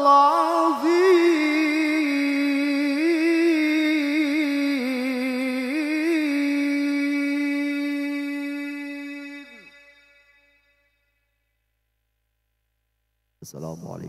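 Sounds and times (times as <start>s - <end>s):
man chanting amplified: 13.4s - 14.0s.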